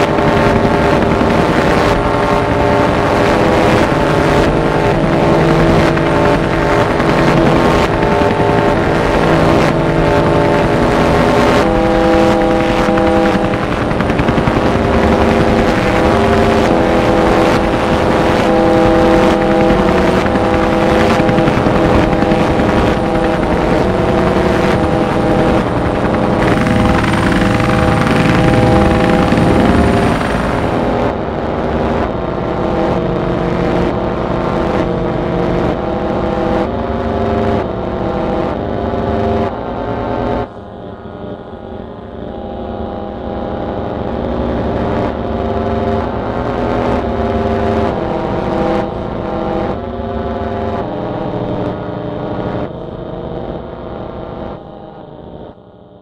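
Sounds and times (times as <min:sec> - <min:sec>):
steady wash of noise: 0:00.0 - 0:33.6
sustained droning tones: 0:00.0 - 0:34.1.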